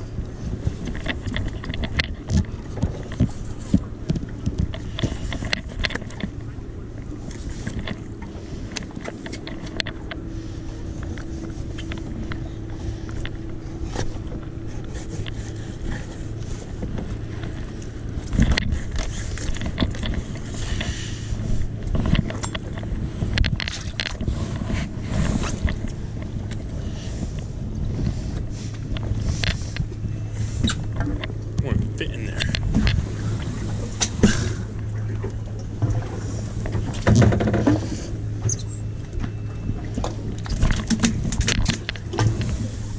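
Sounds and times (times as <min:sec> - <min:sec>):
outboard motor idling: 0:00.0 - 0:42.9.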